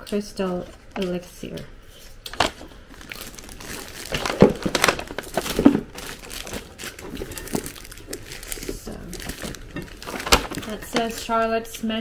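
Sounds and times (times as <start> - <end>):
plastic wrapping crinkling: 2.0 - 11.6.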